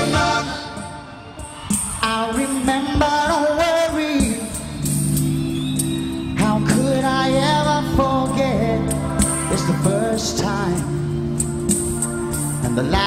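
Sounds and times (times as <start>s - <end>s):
synthesizer chords: 4.7s - 13.0s.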